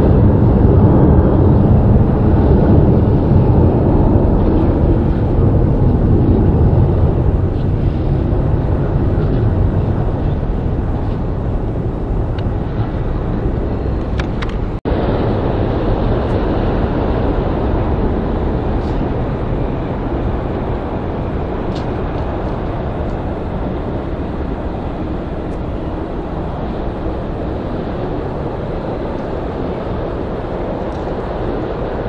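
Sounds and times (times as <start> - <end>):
jet engine roar: 0.0 - 32.0.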